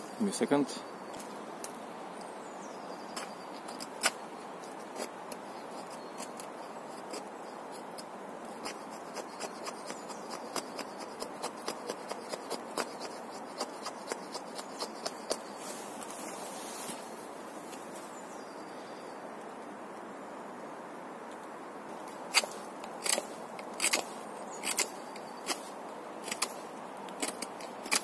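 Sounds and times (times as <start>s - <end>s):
blade scraping wooden stick: 3.2s - 16.1s, 22.3s - 26.6s.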